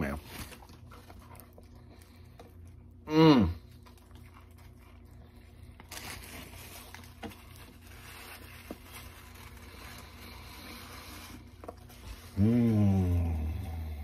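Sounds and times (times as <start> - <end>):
low steady hum: 0.0 - 14.0
man chewing: 0.4 - 14.0
paper napkin rustling: 5.8 - 13.1.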